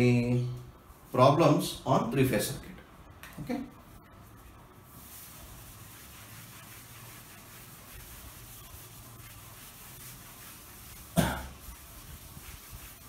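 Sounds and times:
duster scrubbing chalkboard: 3.7 - 13.0.

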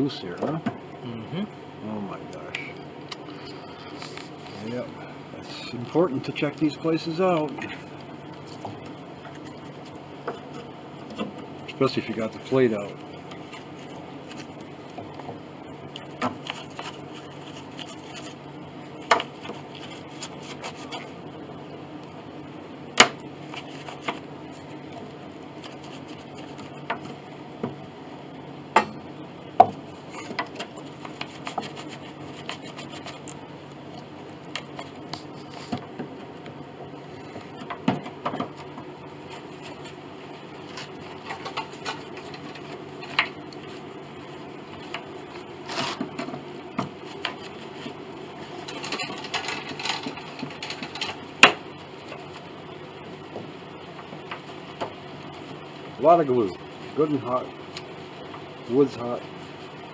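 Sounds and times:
steady low hum: 0.0 - 59.9
rubbing and scraping: 16.2 - 18.4, 19.2 - 21.2, 23.4 - 27.2, 29.8 - 33.4, 39.2 - 43.9, 44.8 - 51.2.

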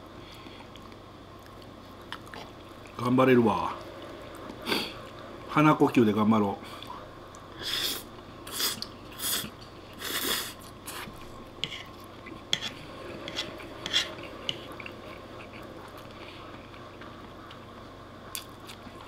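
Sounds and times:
chewing: 0.4 - 3.0, 13.4 - 17.6.

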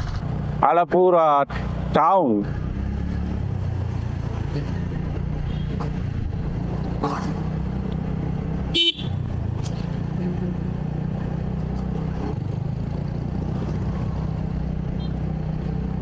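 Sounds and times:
motorbike rumble: 0.0 - 16.0
vehicle horn toot: 5.4 - 5.8, 8.7 - 9.2.

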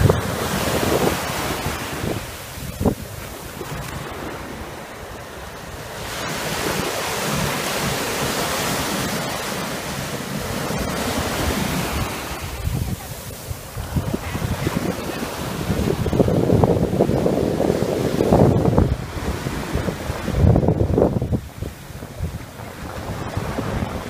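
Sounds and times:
small waves breaking on beach: 0.0 - 24.0
wind buffeting microphone: 0.0 - 24.0.

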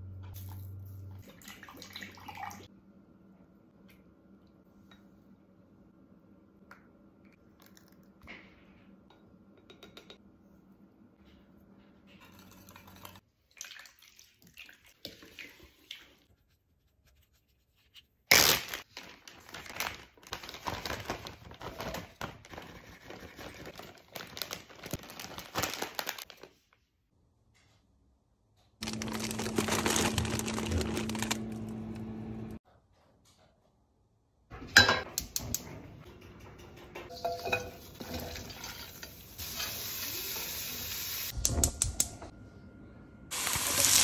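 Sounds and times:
plastic bag crinkling: 18.7 - 22.6, 23.4 - 26.6, 28.8 - 32.0
vegetables tipped into bag: 28.8 - 31.6
freezer humming: 28.8 - 32.6.

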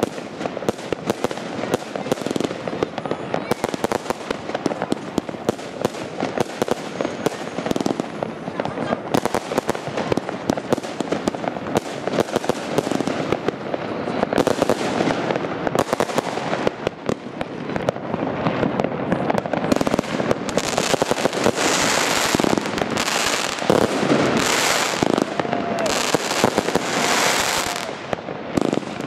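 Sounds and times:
fireworks bangs and crackles: 0.0 - 29.0.

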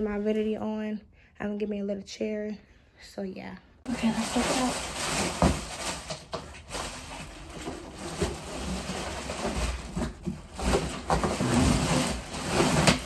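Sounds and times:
plastic wrap and cardboard rustling: 3.9 - 13.0.

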